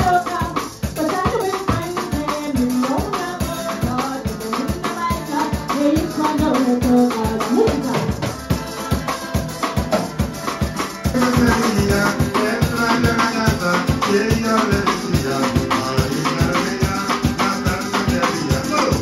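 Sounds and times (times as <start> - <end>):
woman singing: 0.0 - 9.3
drum kit: 0.0 - 19.0
shaker: 0.0 - 19.0
strummed cuatro and guitar: 0.0 - 19.0.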